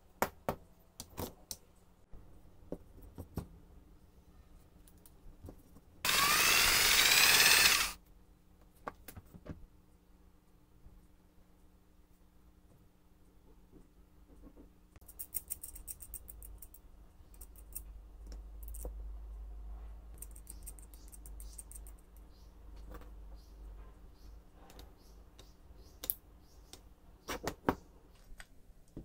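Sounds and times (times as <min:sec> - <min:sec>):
small metal parts clicking: 0:15.0 - 0:18.9, 0:20.2 - 0:22.1.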